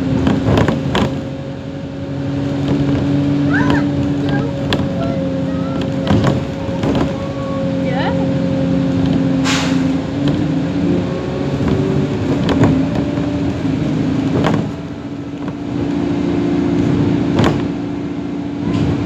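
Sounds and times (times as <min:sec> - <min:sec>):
bus engine hum: 0:00.0 - 0:19.0
knocks and rattles: 0:00.2 - 0:01.2, 0:05.8 - 0:07.2.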